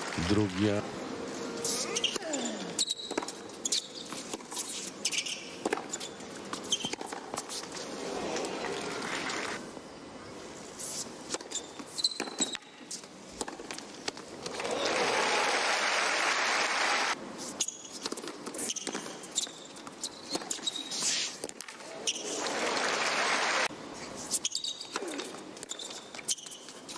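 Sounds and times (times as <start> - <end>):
shoes squeaking on court: 1.4 - 9.6, 10.8 - 14.6, 17.4 - 22.6, 24.0 - 26.9
tennis balls struck and bouncing: 2.0 - 7.6, 11.3 - 14.6
crowd noise: 21.8 - 23.7.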